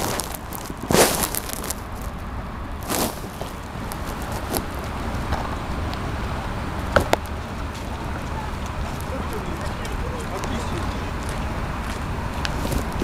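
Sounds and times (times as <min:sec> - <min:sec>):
distant road traffic rumble: 0:00.0 - 0:13.0.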